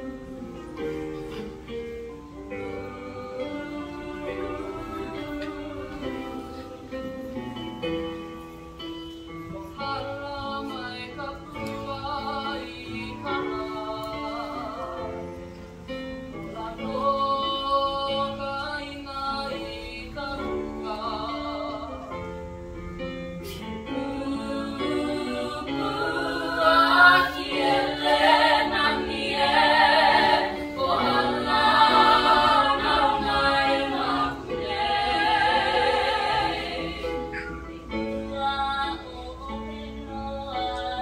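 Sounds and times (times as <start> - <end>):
girls singing with vibrato: 2.5 - 7.4, 23.5 - 41.0.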